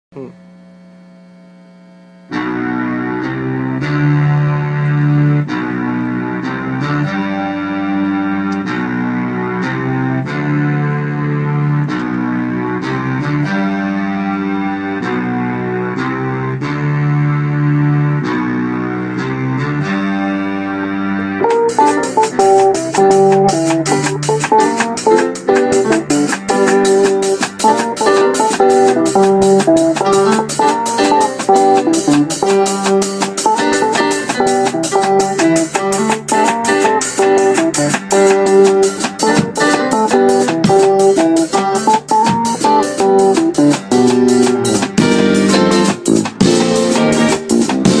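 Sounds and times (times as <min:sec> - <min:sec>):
electronic keyboard chords: 0:02.2 - 0:48.0
electric bass guitar: 0:02.3 - 0:48.0
fast crisp clicking rhythm: 0:21.4 - 0:48.0.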